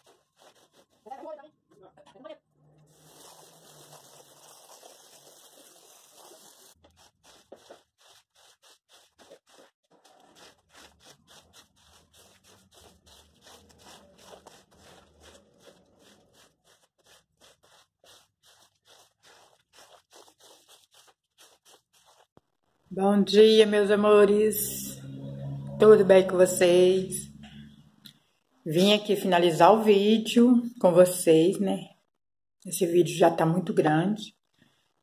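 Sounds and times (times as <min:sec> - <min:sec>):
broom scrubbing a wet rug: 0:00.0 - 0:01.4, 0:02.8 - 0:22.4.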